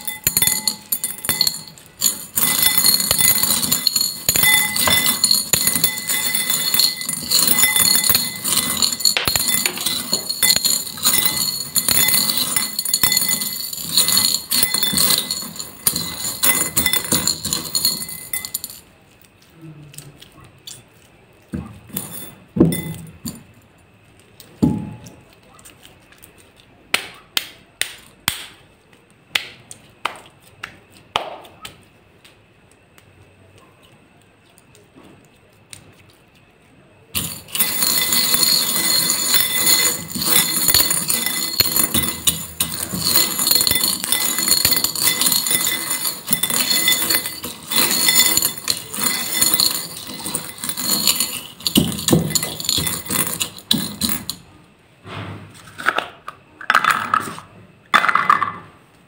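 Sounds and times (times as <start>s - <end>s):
beads clinking against glass bowl: 0.0s - 18.9s, 21.6s - 23.6s, 37.2s - 54.5s.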